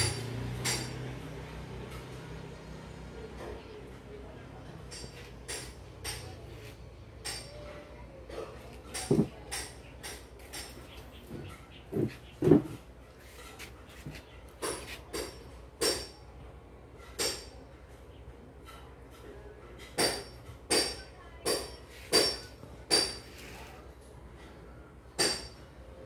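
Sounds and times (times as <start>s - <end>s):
hard objects clinking and knocking: 8.9s - 12.8s.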